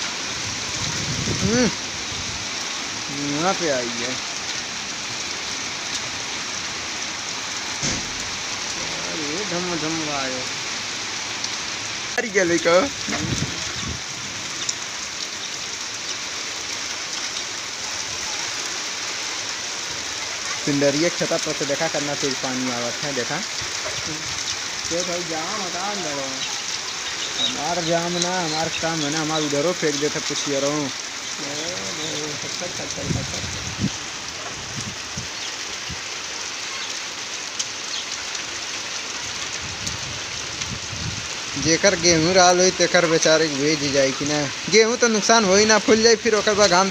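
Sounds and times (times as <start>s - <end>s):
heavy rain on concrete: 0.0s - 46.9s.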